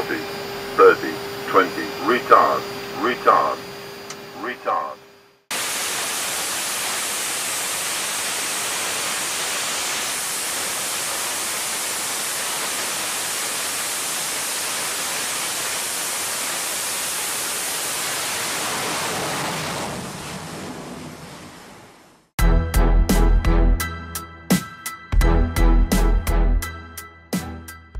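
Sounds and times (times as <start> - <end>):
jet engine hissing roar: 0.0 - 21.6.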